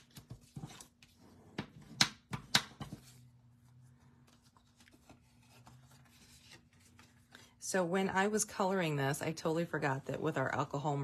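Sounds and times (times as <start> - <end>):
paper rustling: 3.0 - 7.5.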